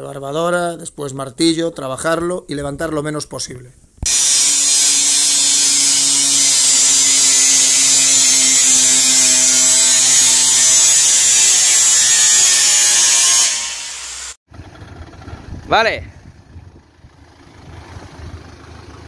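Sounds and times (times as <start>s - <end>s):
angle grinder cutting sheet metal: 4.0s - 14.4s.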